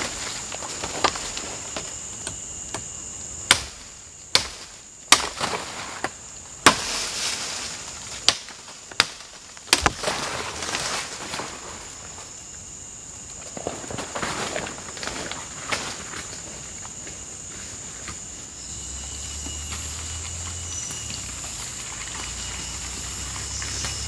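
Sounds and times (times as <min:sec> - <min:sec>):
insects droning: 0:00.0 - 0:24.0
blade chopping wood: 0:03.5 - 0:07.0, 0:08.2 - 0:10.5.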